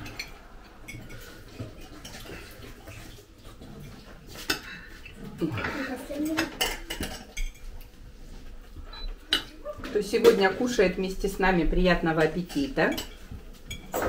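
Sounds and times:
forks clinking on plates: 6.2s - 7.8s.

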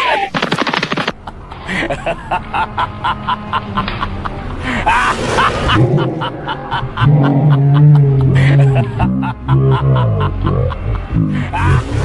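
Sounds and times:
background music: 1.4s - 12.0s
snickering laughs: 1.6s - 12.0s.

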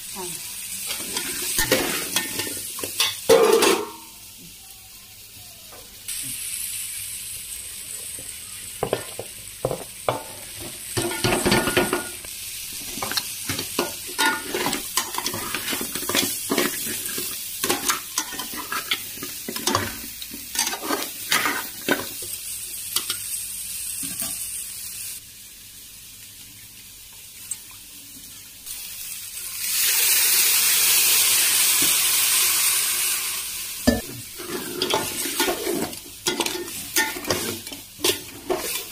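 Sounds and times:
curry sizzling in a pan: 0.0s - 38.9s
steam hissing: 28.7s - 36.1s
spoon scraping a metal pan: 34.4s - 38.9s.

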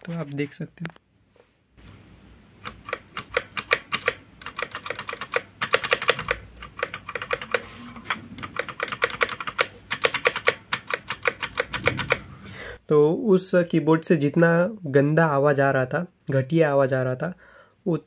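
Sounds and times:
keyboard spacebar clacking: 2.7s - 12.3s.

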